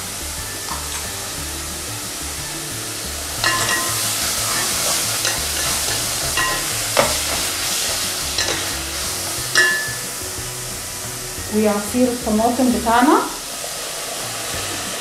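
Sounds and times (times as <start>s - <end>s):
vegetables sizzling in a pot: 0.0s - 15.0s
wooden spoon stirring: 3.3s - 12.0s
spoon knocking against pot: 3.4s - 8.8s, 9.5s - 10.1s.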